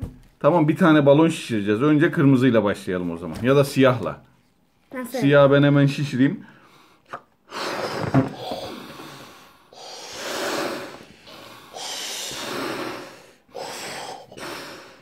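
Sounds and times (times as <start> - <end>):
quick breaths: 6.4 - 15.0
child blowing into a balloon: 7.5 - 14.8.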